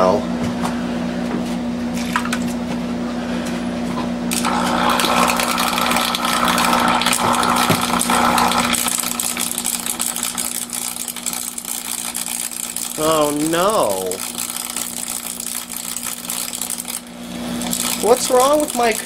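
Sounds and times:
desktop computer humming: 4.3 - 19.0.

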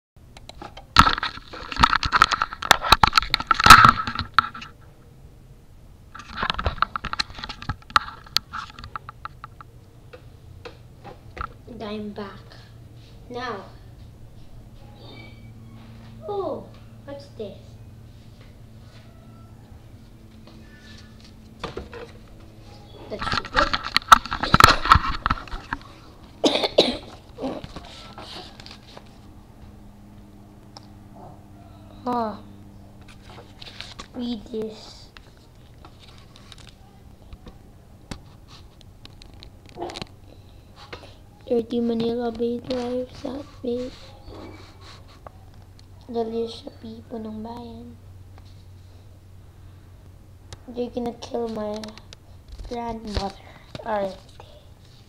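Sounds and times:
person coughing: 26.4 - 27.6.

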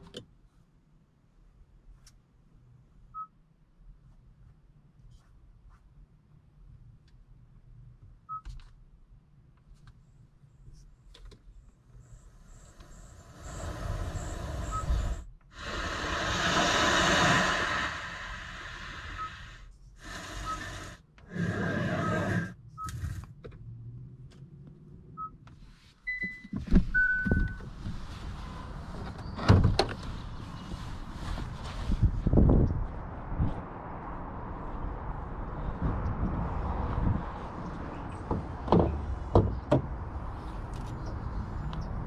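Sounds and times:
nature ambient soundscapes: 11.5 - 22.5.

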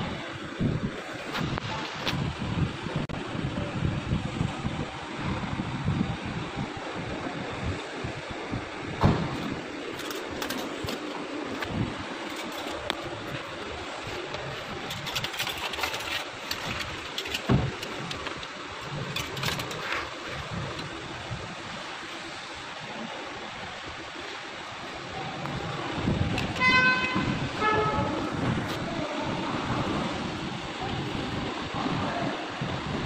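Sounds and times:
steady background noise: 0.0 - 33.0
scrapes and knocks: 9.3 - 20.9.

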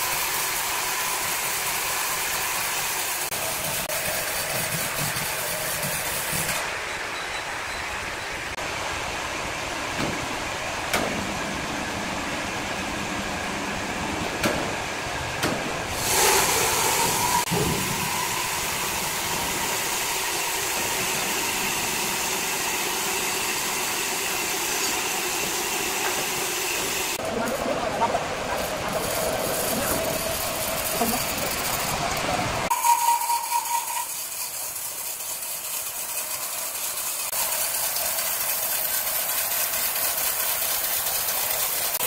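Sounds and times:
band saw running: 0.0 - 6.8, 15.8 - 42.0.

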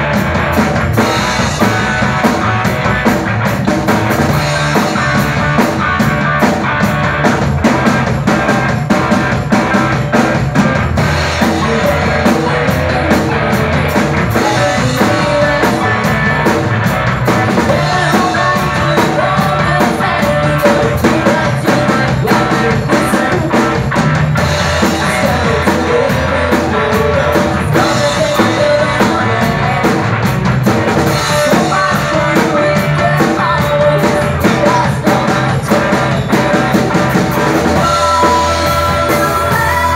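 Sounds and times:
drum kit: 0.0 - 39.9
electric guitars: 0.0 - 39.9
woman singing into a microphone: 37.8 - 39.9.

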